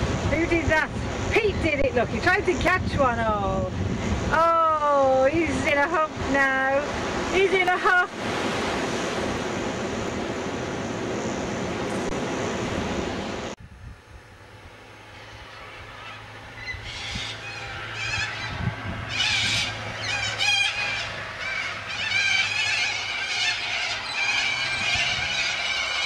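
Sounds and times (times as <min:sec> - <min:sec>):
wind and surf: 0:00.0 - 0:26.0
flock of galahs screeching: 0:15.0 - 0:26.0.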